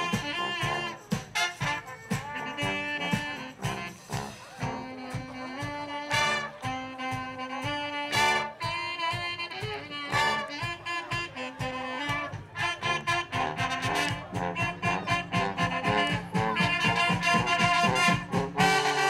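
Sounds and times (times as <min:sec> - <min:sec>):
sousaphone bass line: 0:00.0 - 0:05.0, 0:10.1 - 0:19.0
brass band playing: 0:00.0 - 0:19.0
drum kit beat: 0:00.0 - 0:19.0.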